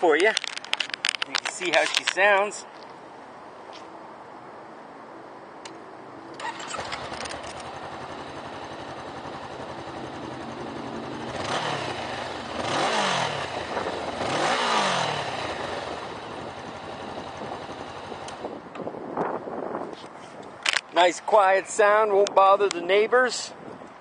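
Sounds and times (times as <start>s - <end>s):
motorcycle engine revving: 6.4s - 18.6s
motorcycle engine starting and idling: 6.4s - 18.9s.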